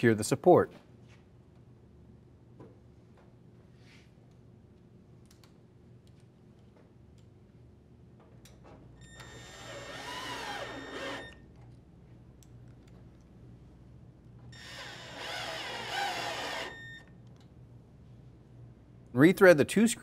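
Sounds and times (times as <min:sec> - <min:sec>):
cordless drill motor whine: 0:09.0 - 0:11.4, 0:14.6 - 0:17.1.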